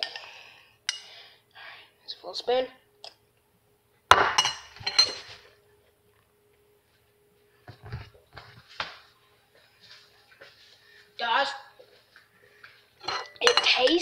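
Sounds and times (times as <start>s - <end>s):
spoon clinking on bowl: 13.0s - 14.0s.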